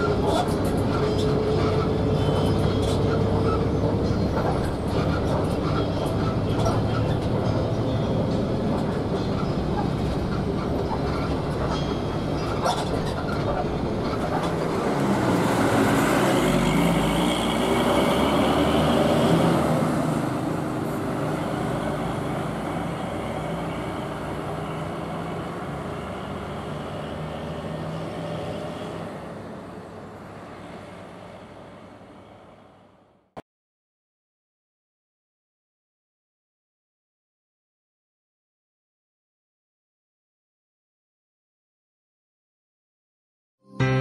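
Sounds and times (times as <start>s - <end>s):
bus engine and road rumble: 0.0s - 33.4s.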